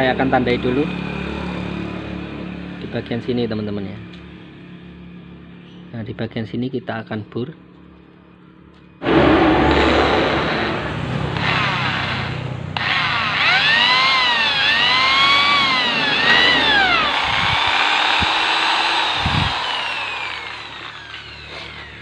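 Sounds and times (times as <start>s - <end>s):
electric drill boring into metal: 9.0s - 22.0s.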